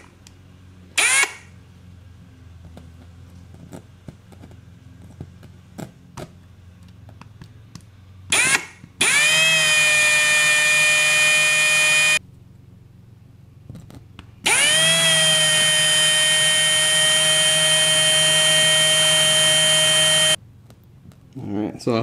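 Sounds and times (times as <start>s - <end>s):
power drill whining: 1.0s - 1.5s, 8.3s - 12.2s, 14.4s - 20.4s.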